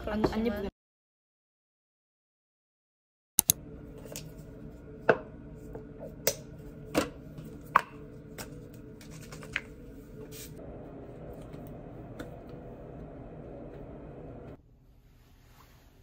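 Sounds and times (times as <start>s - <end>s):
steady low hum: 3.5s - 15.3s.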